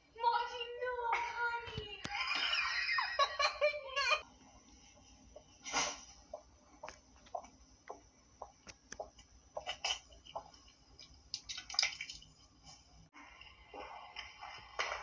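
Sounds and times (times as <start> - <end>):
cat retching and vomiting: 9.6 - 10.6.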